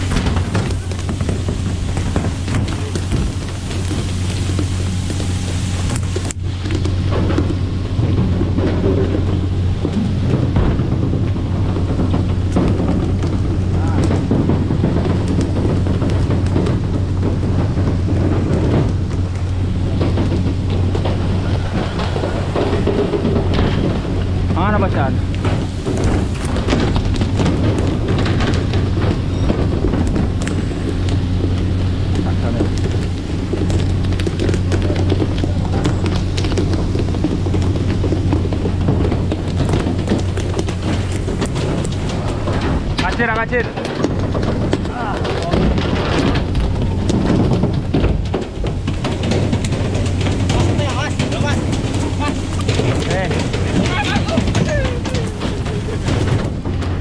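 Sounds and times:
boat engine drone: 0.0s - 57.0s
spray rushing off hull: 0.0s - 57.0s
wind on microphone: 0.0s - 57.0s.

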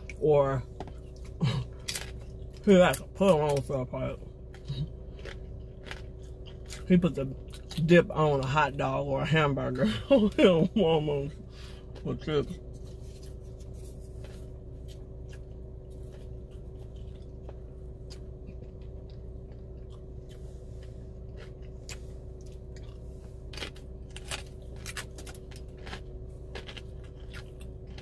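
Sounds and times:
person chewing crunchy chips: 0.0s - 28.0s
steady low hum: 0.0s - 28.0s.

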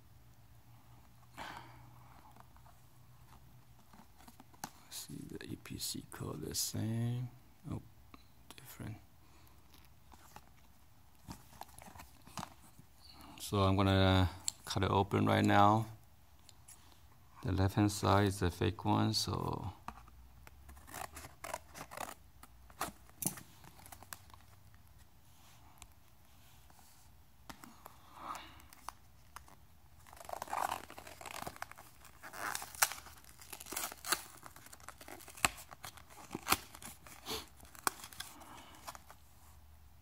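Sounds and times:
plastic crinkling: 28.6s - 39.2s.

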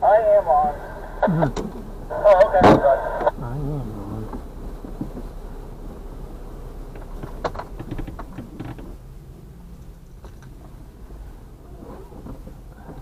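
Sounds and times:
low engine rumble: 0.0s - 13.0s
sharp clicks and knocks: 6.9s - 9.0s.

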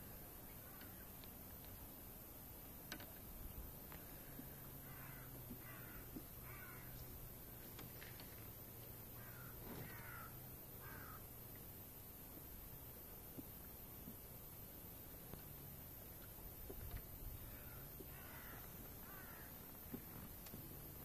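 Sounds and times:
bird harsh caw-like calls: 4.1s - 7.0s, 9.2s - 11.3s, 17.4s - 19.7s.

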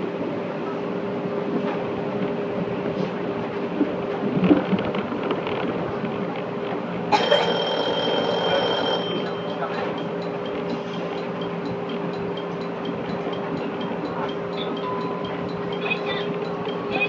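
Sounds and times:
train running rumble: 0.0s - 17.0s
high electronic alarm tone: 7.2s - 17.0s
faint ticking: 7.6s - 17.0s.

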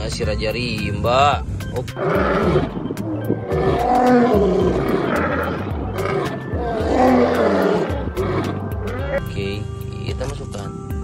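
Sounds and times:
background music with steady beat: 0.0s - 11.0s
lions roaring: 1.8s - 9.2s.

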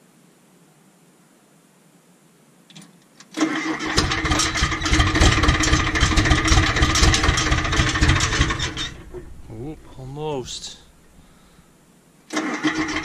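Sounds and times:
diesel engine cranking and starting: 3.4s - 11.4s, 12.3s - 13.0s.

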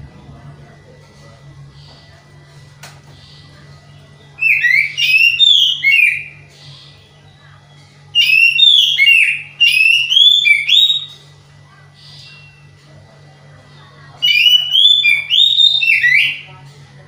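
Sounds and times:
bird singing whistled phrases: 4.4s - 6.4s, 8.2s - 11.2s, 14.2s - 16.5s.

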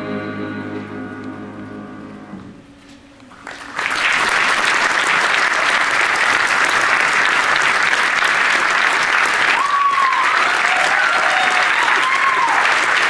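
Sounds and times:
choir and piano chord: 0.0s - 2.6s
audience applause: 3.3s - 13.0s.

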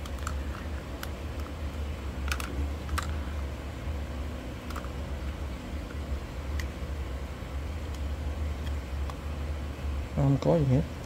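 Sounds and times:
steady low hum: 0.0s - 11.0s
plastic housing clicking: 2.2s - 3.2s, 4.6s - 4.9s.

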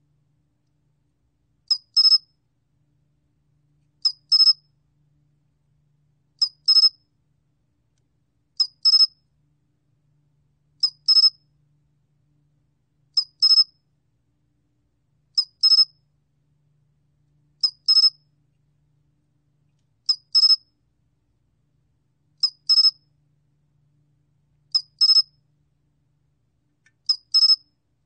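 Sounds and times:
cricket chirping: 1.7s - 2.3s, 8.6s - 9.1s, 15.4s - 15.9s, 17.6s - 18.1s, 22.4s - 23.0s, 24.7s - 25.3s, 27.1s - 27.6s.

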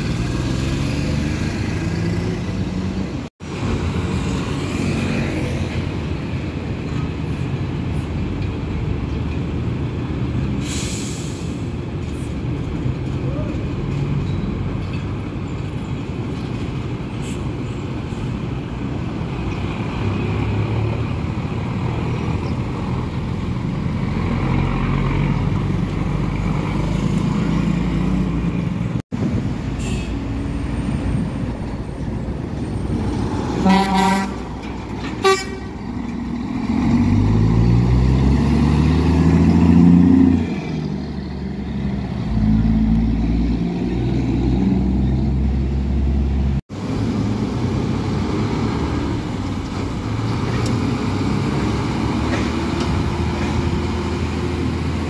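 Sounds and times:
heavy truck engines running: 0.0s - 55.0s
truck engine revving: 32.9s - 55.0s
vehicle horn blast: 33.6s - 34.4s, 35.2s - 35.7s.

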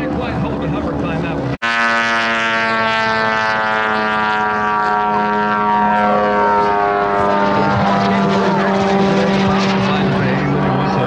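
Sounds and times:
model plane engine droning: 1.6s - 11.0s.

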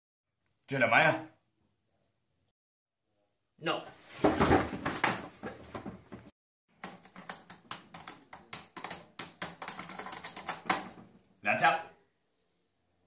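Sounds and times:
typing on a laptop keyboard: 6.8s - 11.0s.

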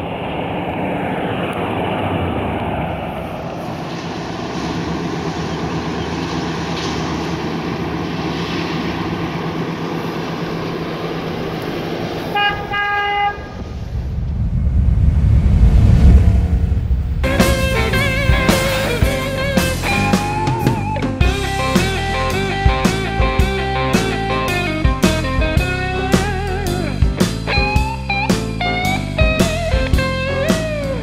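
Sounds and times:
tyre and road noise: 0.0s - 31.0s
car horn toots: 12.3s - 13.6s
car engine driving past: 13.4s - 20.4s
music: 17.2s - 31.0s.

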